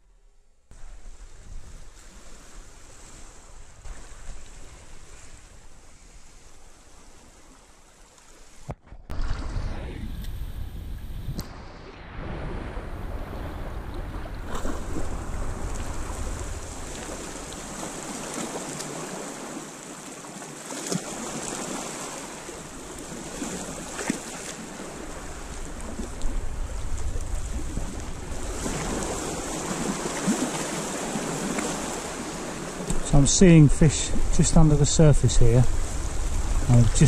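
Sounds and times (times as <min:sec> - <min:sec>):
waves lapping against rocks: 0:00.7 - 0:10.6, 0:12.6 - 0:37.0
wind gusting on microphone: 0:09.0 - 0:19.4, 0:22.4 - 0:37.0.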